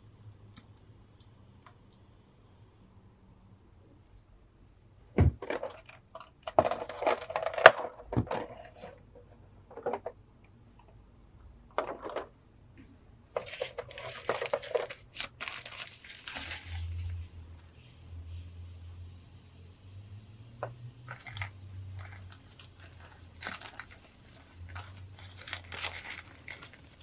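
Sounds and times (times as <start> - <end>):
plastic tray crackling: 5.3 - 9.0, 13.3 - 17.0, 21.1 - 27.0
tissue paper crinkling: 13.4 - 17.4, 21.1 - 27.0.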